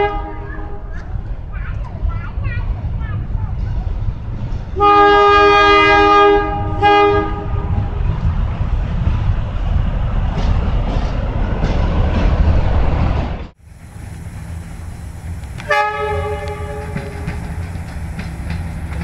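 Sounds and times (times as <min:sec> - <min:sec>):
locomotive horn blasts: 0:00.0 - 0:00.9, 0:04.8 - 0:08.0, 0:15.5 - 0:17.4
train rumble and wheel noise: 0:00.0 - 0:19.0.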